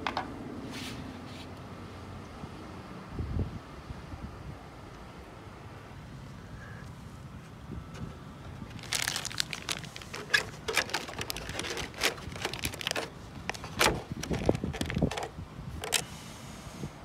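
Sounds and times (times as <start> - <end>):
plastic bag crinkling: 8.6 - 16.0.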